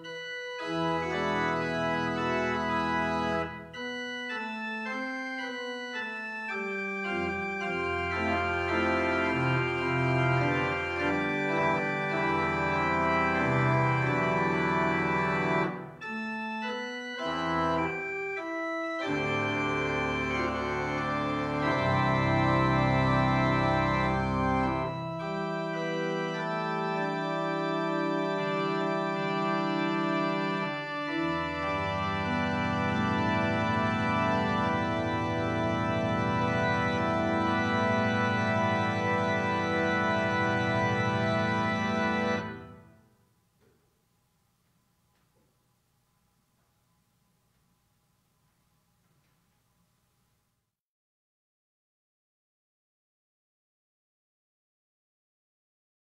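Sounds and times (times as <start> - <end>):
church organ chords: 0.0 - 43.4.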